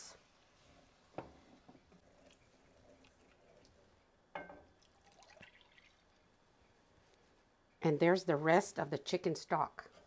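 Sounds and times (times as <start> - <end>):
liquid pouring and dripping: 4.8 - 6.3.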